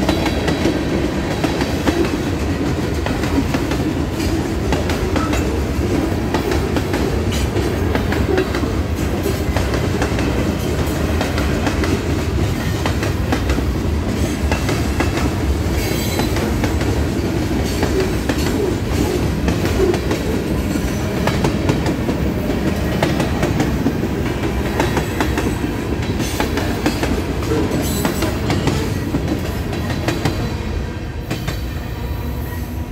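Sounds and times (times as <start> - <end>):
train wheels rumbling on rails: 0.0 - 32.9.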